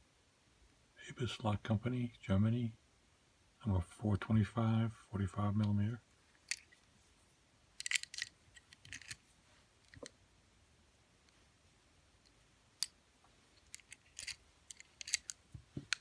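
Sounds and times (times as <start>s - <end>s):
key clicking in padlock: 13.8s - 15.4s.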